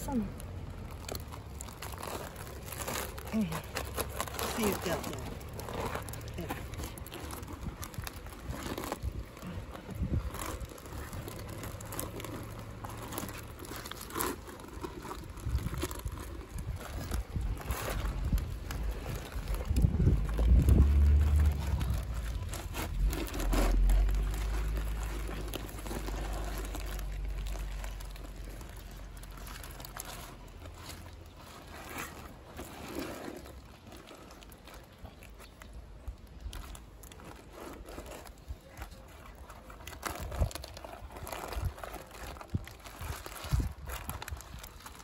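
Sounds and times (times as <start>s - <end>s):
soft squishes and clicks: 0.0s - 45.0s
wet cloth rustling and crumpling: 0.0s - 45.0s
low wind rumble on microphone: 4.4s - 31.8s, 37.8s - 45.0s.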